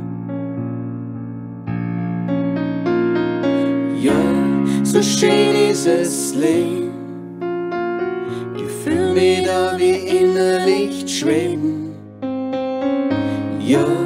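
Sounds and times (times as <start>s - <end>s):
keyboard chords: 0.0s - 14.0s
sliding melody line: 3.4s - 7.1s.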